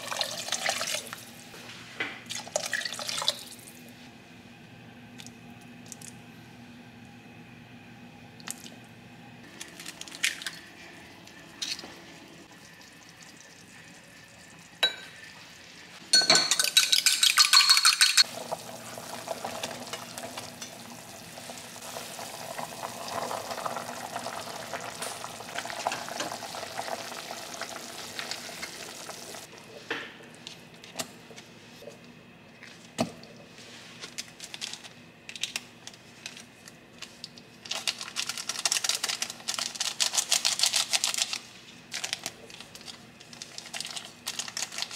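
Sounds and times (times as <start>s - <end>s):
utensils clinking against pot: 16.1s - 18.2s
soft hiss from simmering pot: 18.2s - 29.9s.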